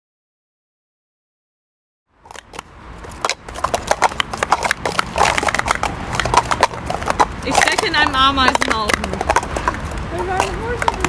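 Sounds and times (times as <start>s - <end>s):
plastic cups clacking: 2.4s - 11.0s.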